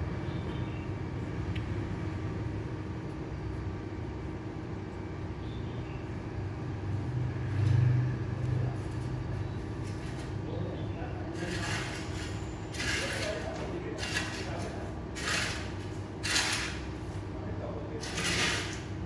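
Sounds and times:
road traffic rumble: 4.8 - 12.8.

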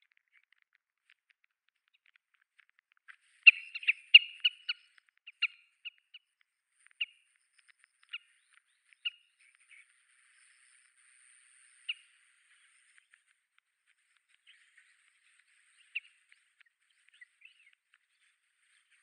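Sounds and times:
birds calling: 3.4 - 6.0, 14.2 - 19.0.

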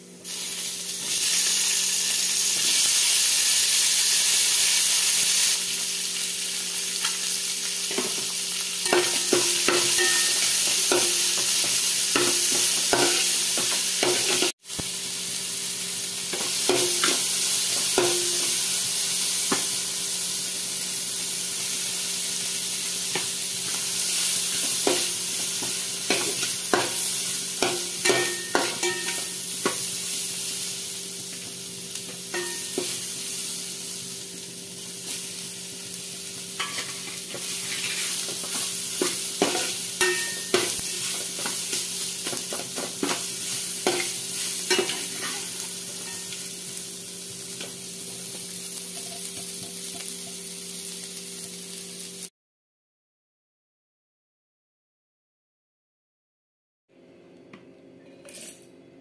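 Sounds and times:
ingredients sizzling in pan: 0.1 - 52.3
metal spatula scraping pan: 36.6 - 41.6, 43.8 - 46.4.

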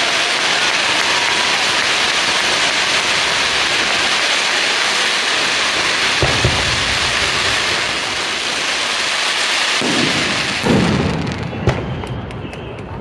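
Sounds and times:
fireworks hissing and crackling: 0.0 - 13.0
sharp firework bang: 5.7 - 8.4, 9.7 - 12.1
low booms of shells bursting: 6.1 - 8.4, 9.8 - 12.0.

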